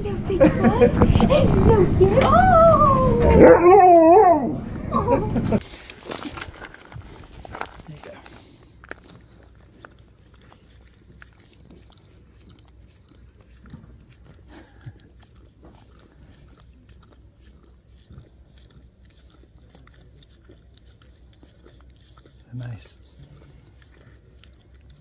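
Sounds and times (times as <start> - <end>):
dog licking: 5.6 - 25.0.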